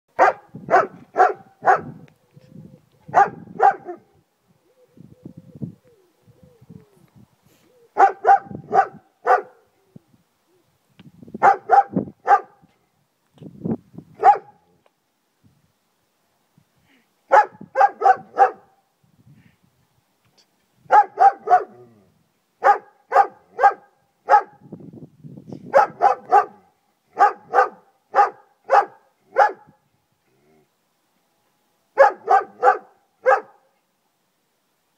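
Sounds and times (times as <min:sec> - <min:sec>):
dog barking loudly: 0:00.2 - 0:02.0, 0:03.1 - 0:04.1, 0:08.0 - 0:09.6, 0:11.4 - 0:12.6, 0:14.2 - 0:14.6, 0:17.3 - 0:18.7, 0:20.9 - 0:21.9, 0:22.6 - 0:24.6, 0:25.7 - 0:29.7, 0:32.0 - 0:33.7.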